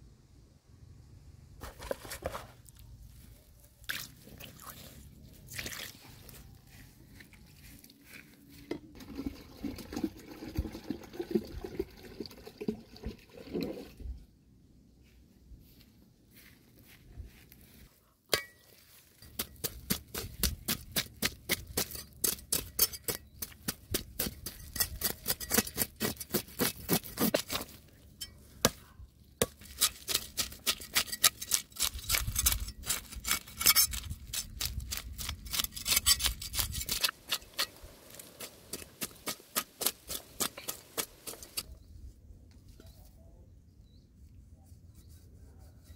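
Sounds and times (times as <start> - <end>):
cleaver scraping fish scales: 24.2 - 27.9, 29.5 - 41.7.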